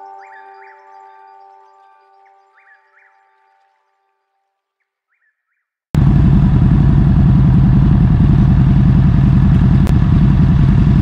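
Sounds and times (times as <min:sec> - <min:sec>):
motorcycle engines idling: 0:06.0 - 0:11.0.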